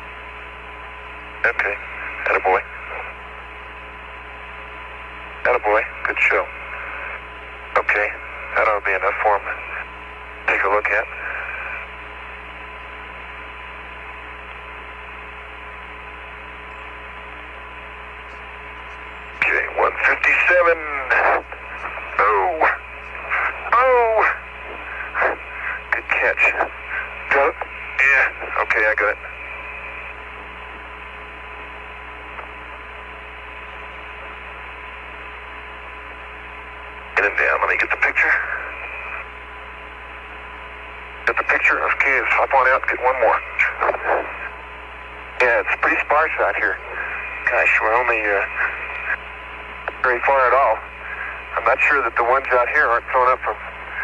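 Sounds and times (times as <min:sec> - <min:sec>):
radio hiss and hum: 0:00.0 - 0:54.0.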